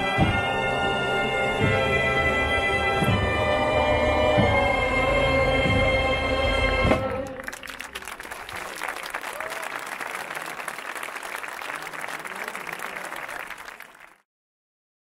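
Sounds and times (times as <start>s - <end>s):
crowd applauding: 7.1s - 14.2s.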